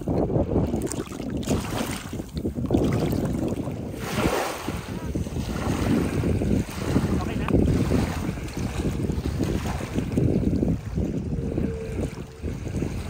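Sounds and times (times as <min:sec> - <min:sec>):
wind buffeting microphone: 0:00.0 - 0:13.0
waves lapping on pebble shore: 0:03.9 - 0:10.1.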